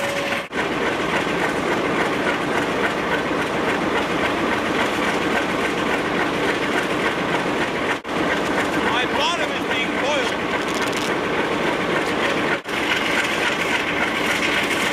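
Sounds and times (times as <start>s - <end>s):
diesel engine and fans din: 0.0s - 14.9s
wheels rolling on rails: 0.0s - 14.9s.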